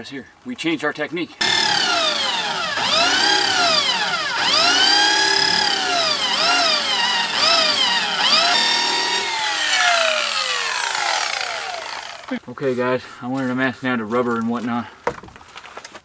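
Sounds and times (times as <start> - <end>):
electric drill motor whine: 1.4 - 12.4.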